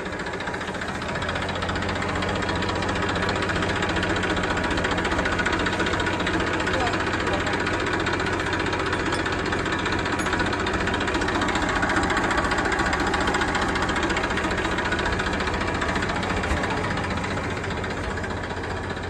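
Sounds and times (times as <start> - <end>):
tractor diesel engine idling: 0.0 - 19.0.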